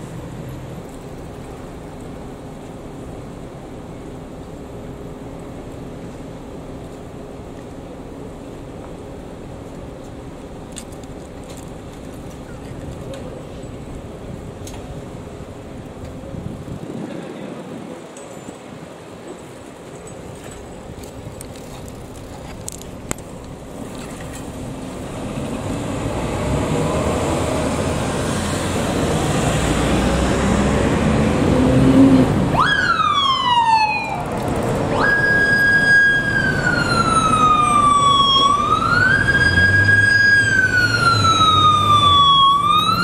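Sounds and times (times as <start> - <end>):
road traffic: 0.0 - 43.0
police siren wailing: 32.5 - 43.0.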